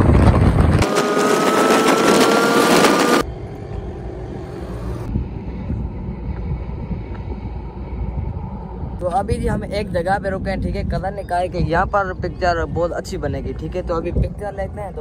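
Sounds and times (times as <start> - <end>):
motorcycle engine at speed: 0.0 - 6.4
rushing air: 0.0 - 11.0
low rumble: 0.0 - 15.0
faint whine rising in pitch: 0.7 - 9.1.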